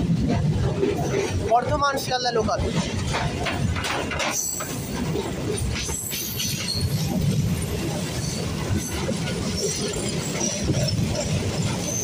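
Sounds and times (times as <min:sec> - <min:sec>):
train wheels rumbling on rails: 0:00.0 - 0:12.0
high wheel squeals: 0:05.9 - 0:07.1, 0:09.4 - 0:12.0.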